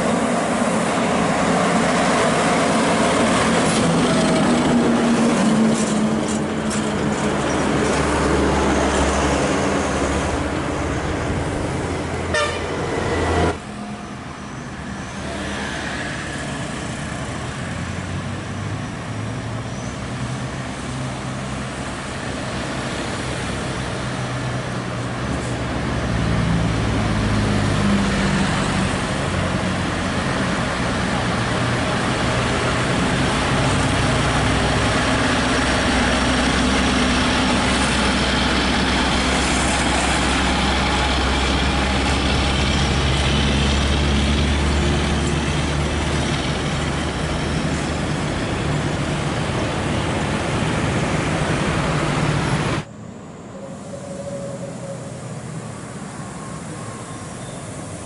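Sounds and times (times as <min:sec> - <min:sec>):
road traffic: 0:00.0 - 0:58.0
truck diesel engine droning: 0:00.0 - 0:58.0.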